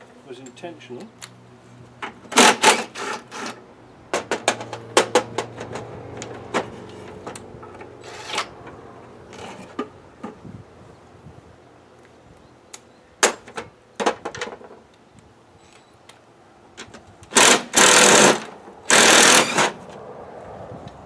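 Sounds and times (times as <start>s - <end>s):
cordless power driver bursts: 17.3s - 19.8s.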